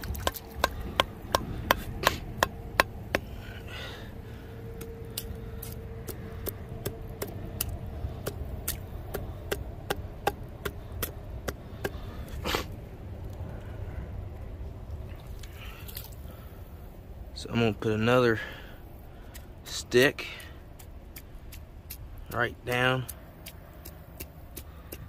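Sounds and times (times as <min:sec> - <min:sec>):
wooden sticks knocking and cracking: 0:00.0 - 0:03.4.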